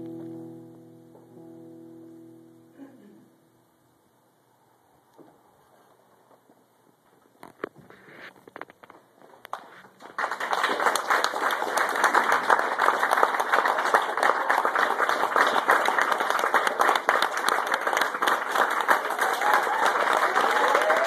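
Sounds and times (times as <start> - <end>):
audience applauding: 9.5 - 21.0.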